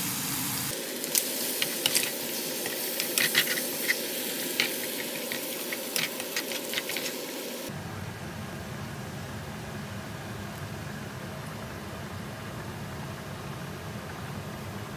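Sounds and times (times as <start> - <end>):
food sizzling in a frying pan: 0.0 - 7.7.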